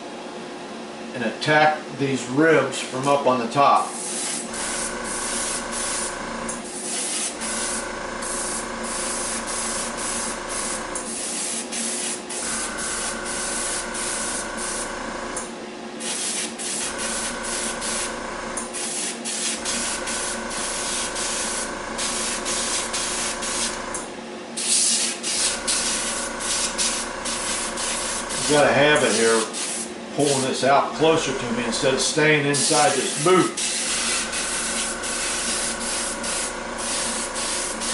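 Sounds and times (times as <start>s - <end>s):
steady motor hum: 1.0s - 37.9s
airbrush spraying hiss: 3.9s - 6.1s, 6.8s - 14.9s, 16.0s - 18.1s, 18.8s - 23.8s, 24.6s - 29.9s, 32.6s - 37.9s.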